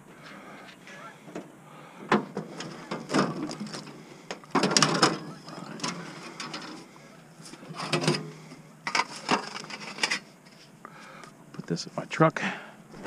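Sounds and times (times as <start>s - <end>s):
scrap metal clanking and rattling: 2.1s - 6.9s, 7.5s - 10.3s.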